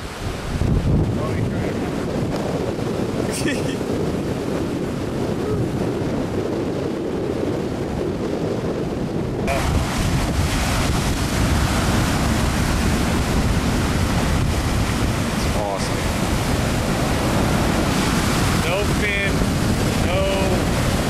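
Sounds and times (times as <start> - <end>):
surf breaking: 0.0 - 21.0
wind buffeting microphone: 0.0 - 21.0.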